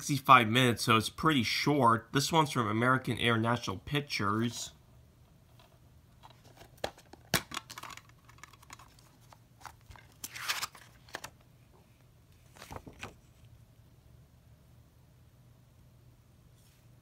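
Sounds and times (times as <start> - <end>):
paper insert rustling: 5.6 - 11.4, 12.4 - 13.5
plastic case snapping open: 6.7 - 8.9.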